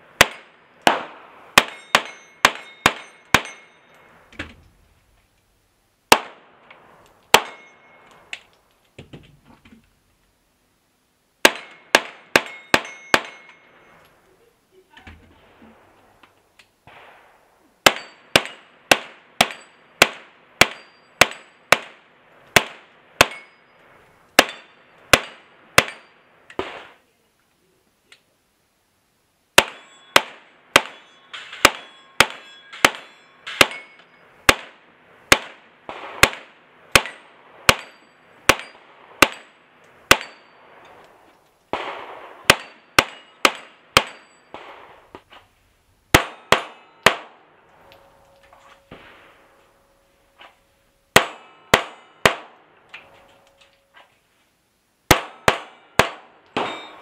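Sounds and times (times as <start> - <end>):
steel plates ringing: 1.6 - 4.3, 7.3 - 8.2, 11.6 - 14.0, 20.7 - 21.6, 23.2 - 23.8, 29.6 - 34.4, 37.0 - 38.9, 40.1 - 41.0, 42.5 - 44.6, 47.8 - 52.3, 55.4 - 57.0.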